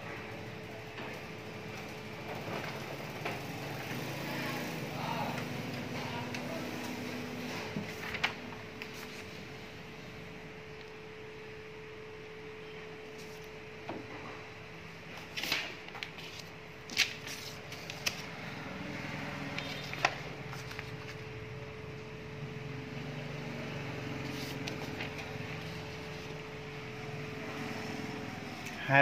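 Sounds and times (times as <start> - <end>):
steady electrical hum: 0.0 - 29.0
paper sheets rustling: 5.3 - 9.5, 15.1 - 18.6, 19.4 - 21.4, 24.2 - 26.8
paper crinkles: 15.1 - 18.4, 19.6 - 21.4, 24.2 - 26.5.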